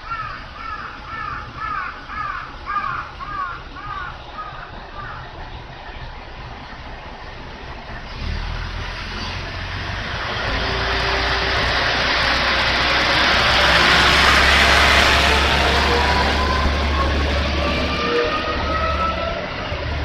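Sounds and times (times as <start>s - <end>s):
diesel railcar engine hum: 0.0s - 20.0s
train running noise: 0.0s - 20.0s.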